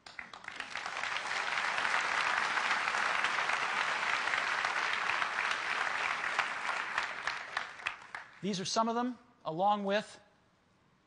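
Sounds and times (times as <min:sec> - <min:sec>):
audience applauding: 0:00.0 - 0:08.6.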